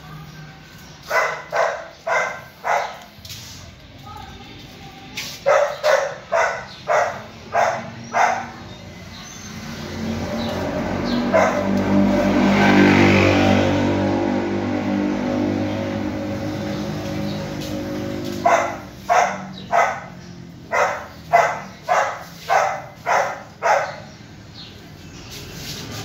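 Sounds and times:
dog barking: 1.0s - 3.1s, 5.4s - 8.7s, 11.1s - 11.9s, 18.4s - 24.2s
vehicle engine running: 6.9s - 26.0s.

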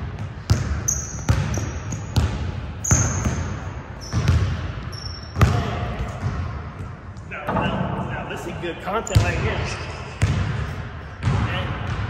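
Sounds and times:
basketball bouncing on court: 0.0s - 7.6s, 9.1s - 12.0s
sneaker squeaks on floor: 0.4s - 6.9s, 9.0s - 9.4s.

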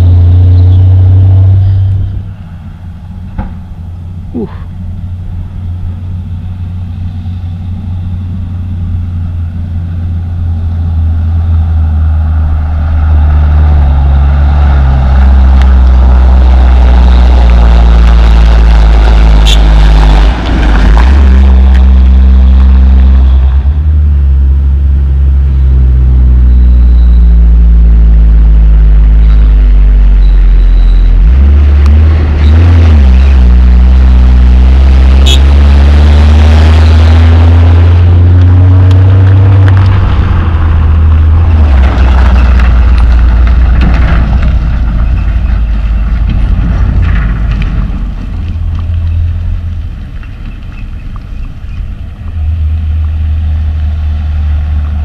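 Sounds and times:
dump truck diesel engines: 0.0s - 55.0s.

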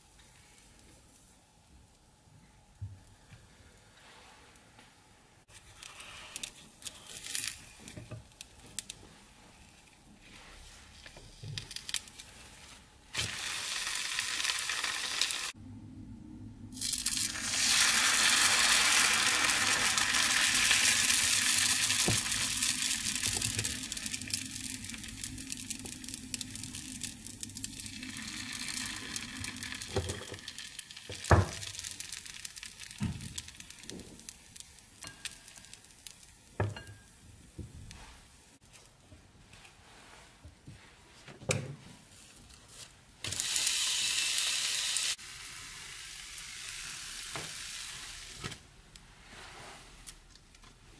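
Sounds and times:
batter sizzling in a frying pan: 11.6s - 15.6s, 16.8s - 38.1s, 43.2s - 48.6s.

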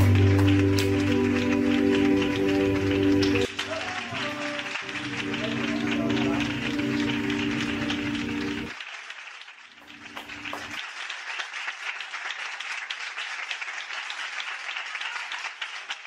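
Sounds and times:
backing music: 0.0s - 8.8s
final chord: 0.0s - 8.8s
audience applauding: 0.0s - 16.0s.

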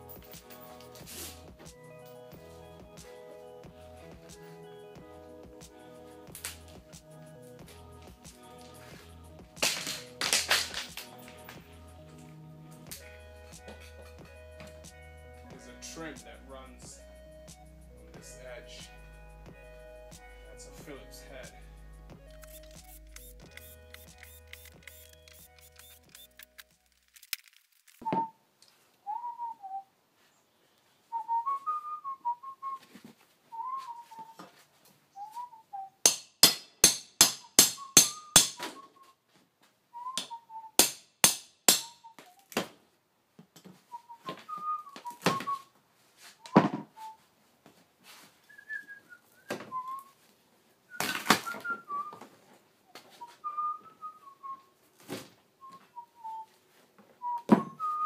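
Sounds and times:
person whistling a tune: 28.0s - 28.4s, 29.1s - 29.9s, 31.1s - 32.8s, 33.5s - 34.5s, 35.2s - 36.0s, 37.5s - 39.2s, 40.0s - 40.8s, 43.9s - 45.7s, 46.4s - 47.2s, 48.5s - 50.2s, 50.9s - 52.3s, 52.9s - 54.7s, 55.6s - 56.6s, 57.2s - 58.0s.

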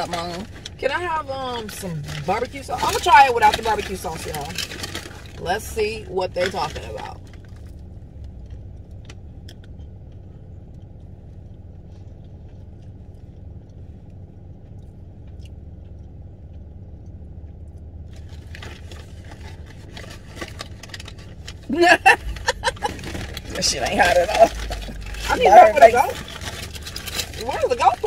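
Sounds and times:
crackly rustling: 0.0s - 28.0s
low hum inside car cabin: 0.0s - 28.0s
crunchy food being chewed: 7.1s - 28.0s.

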